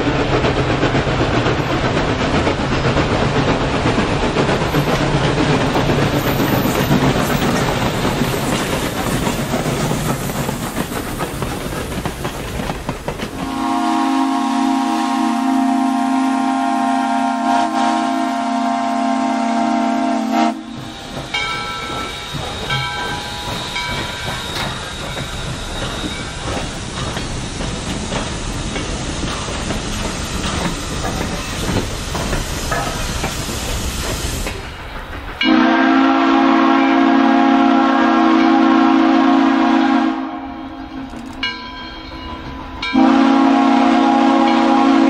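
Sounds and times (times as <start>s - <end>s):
steam hissing: 0.0s - 40.1s
steam locomotives rumbling: 0.0s - 45.0s
steam whistle: 13.4s - 26.2s, 35.4s - 40.6s, 42.9s - 45.0s.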